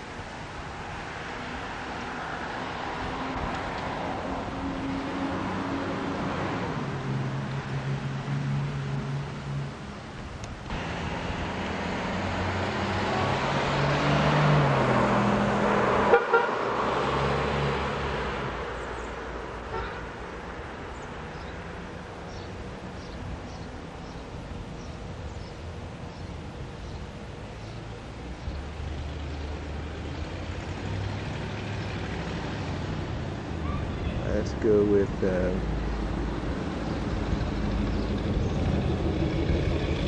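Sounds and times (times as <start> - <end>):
traffic hum: 0.0 - 40.0
vehicle passing: 0.8 - 9.9, 10.7 - 25.2, 26.0 - 40.0
car horn toot: 16.1 - 16.6, 19.7 - 20.1.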